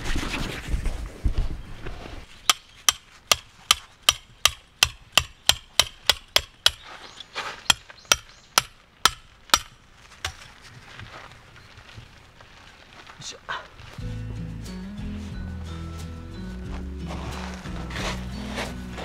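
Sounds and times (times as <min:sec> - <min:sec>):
hammer striking metal tent peg: 0:02.4 - 0:06.8, 0:07.7 - 0:10.5.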